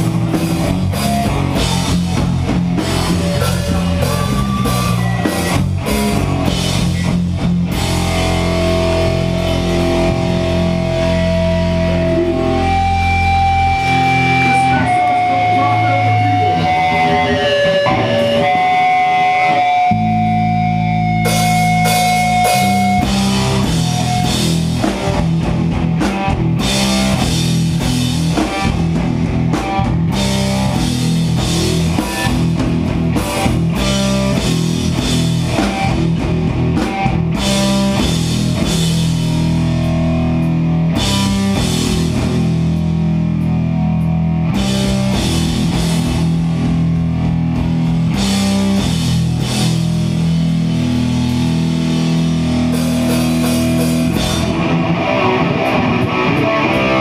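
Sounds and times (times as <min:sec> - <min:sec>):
hardcore band playing live: 0:00.0 - 0:57.0
sustained guitar notes: 0:00.0 - 0:57.0.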